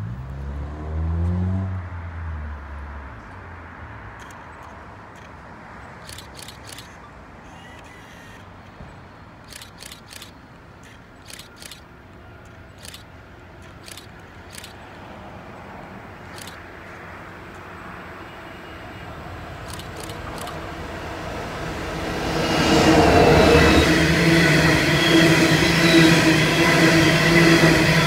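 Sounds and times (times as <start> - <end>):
short sharp high clicks: 6.0 - 8.7, 9.4 - 14.8, 16.3 - 16.6, 19.6 - 20.6.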